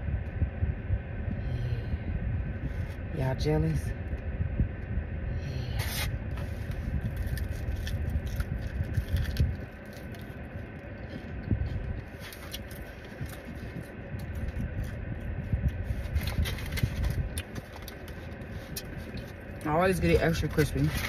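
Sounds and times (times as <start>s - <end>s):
low rumble inside car: 0.0s - 21.0s
chewing and lip-smacking: 6.6s - 19.6s.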